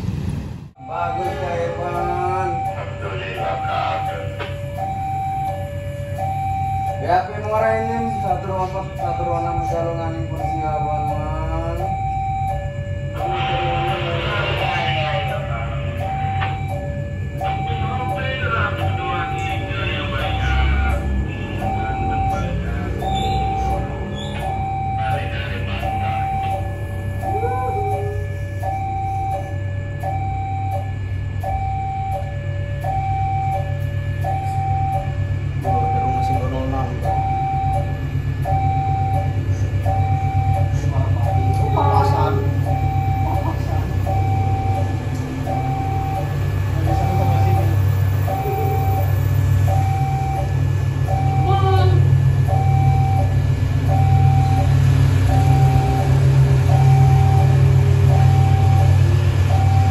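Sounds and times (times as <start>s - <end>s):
deep engine rumble: 0.0s - 59.9s
low hum: 0.0s - 59.9s
level crossing two-tone alarm: 0.8s - 59.9s.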